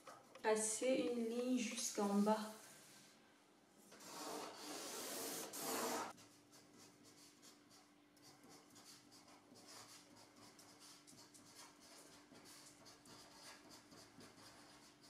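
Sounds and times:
pen scratching along a ruler: 0:03.9 - 0:15.0
pen writing on paper: 0:06.8 - 0:15.0.

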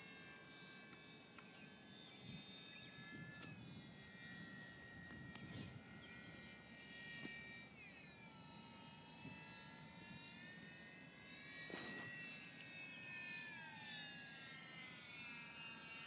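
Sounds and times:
model plane motor whining: 0:00.0 - 0:16.0.

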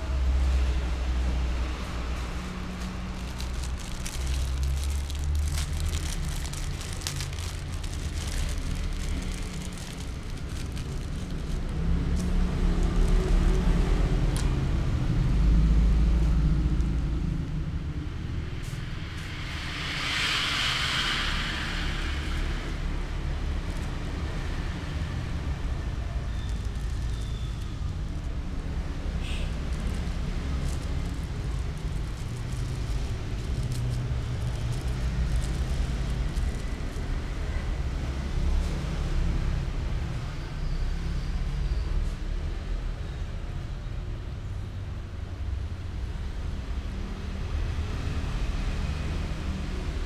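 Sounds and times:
plastic sachet rustling: 0:02.8 - 0:13.7, 0:26.2 - 0:28.3, 0:29.6 - 0:37.2.

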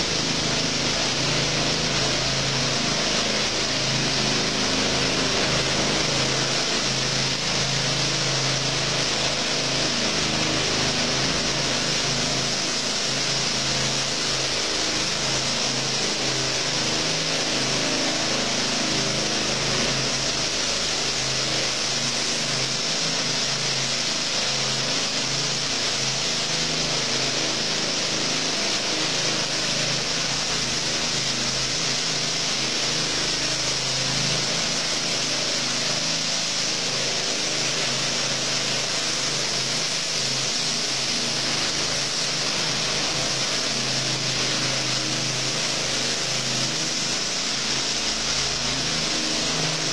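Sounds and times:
power trowel engine drone: 0:00.0 - 0:49.9.

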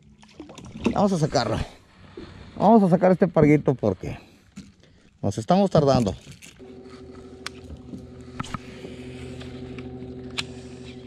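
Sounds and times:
fishing reel whirring: 0:06.4 - 0:11.0.

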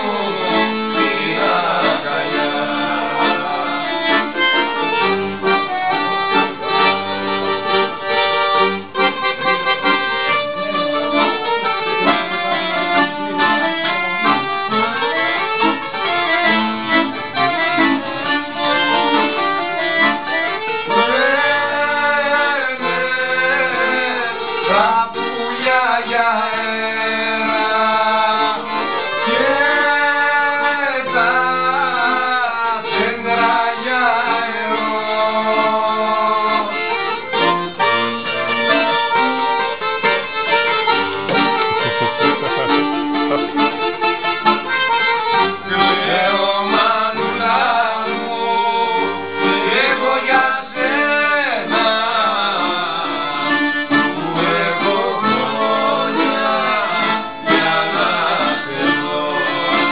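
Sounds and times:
accordion: 0:00.0 - 0:59.9
plucked lutes: 0:36.7 - 0:51.0.

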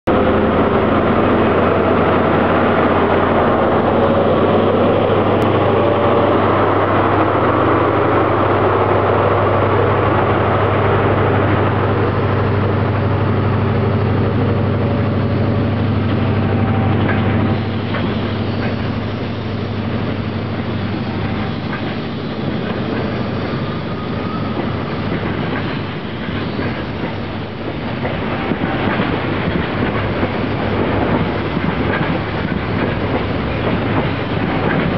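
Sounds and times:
diesel train engine drone: 0:00.0 - 0:34.9
train wheels clattering over rail joints: 0:15.7 - 0:34.9.

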